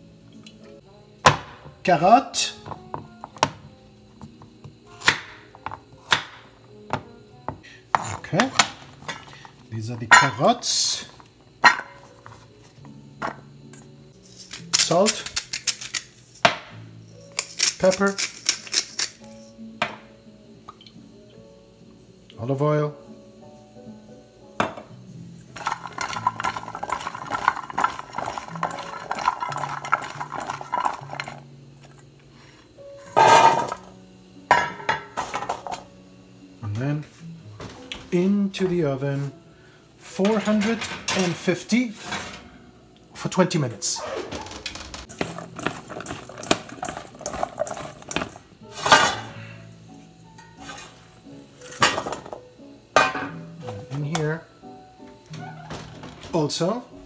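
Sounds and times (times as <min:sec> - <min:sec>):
background music with held notes: 0:00.0 - 0:57.0
pieces clattering into a metal pan: 0:10.1 - 0:10.6, 0:14.2 - 0:16.6, 0:17.2 - 0:20.0, 0:25.5 - 0:32.0, 0:33.0 - 0:33.9, 0:34.5 - 0:35.8, 0:40.2 - 0:42.5, 0:44.6 - 0:49.4, 0:51.6 - 0:52.4, 0:53.0 - 0:54.4
carrots clicking against steel bowl: 0:14.4 - 0:16.1, 0:17.3 - 0:19.3, 0:45.1 - 0:48.4
vegetables tossed in a metal bowl: 0:25.6 - 0:31.4, 0:45.1 - 0:49.2.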